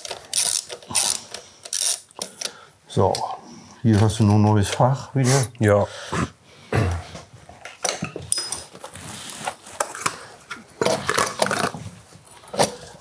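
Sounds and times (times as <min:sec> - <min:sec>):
metal tools clinking and rattling: 0:07.8 - 0:08.8.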